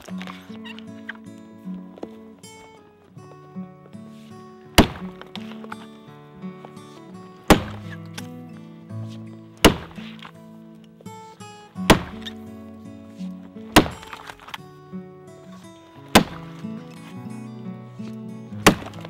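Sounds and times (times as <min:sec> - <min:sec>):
axe chopping into a log: 0:04.8 - 0:05.3, 0:07.5 - 0:08.0, 0:09.6 - 0:10.3, 0:11.9 - 0:12.4, 0:13.7 - 0:14.5, 0:16.1 - 0:16.6, 0:18.6 - 0:19.0.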